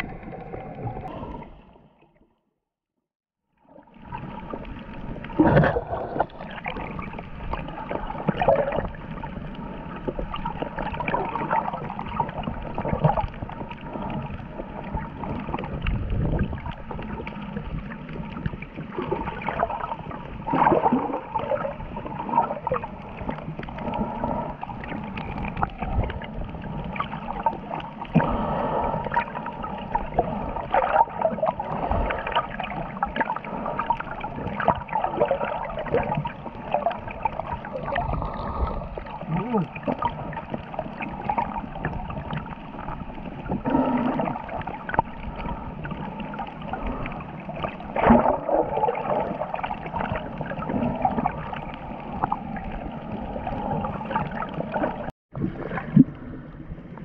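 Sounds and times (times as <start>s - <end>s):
water rushing and gurgling: 0.0s - 2.0s, 3.6s - 57.0s.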